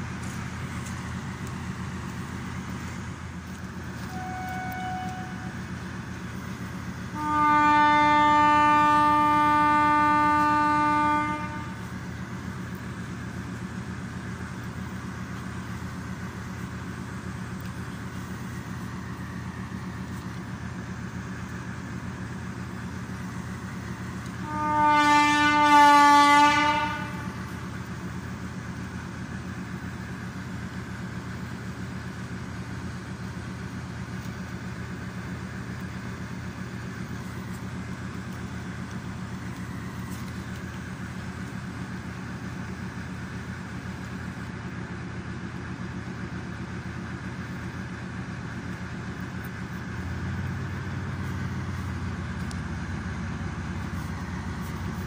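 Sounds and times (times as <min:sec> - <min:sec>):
diesel engine idling: 0:00.0 - 0:55.0
locomotive horn blast: 0:03.9 - 0:05.9, 0:07.0 - 0:12.8, 0:22.5 - 0:27.9.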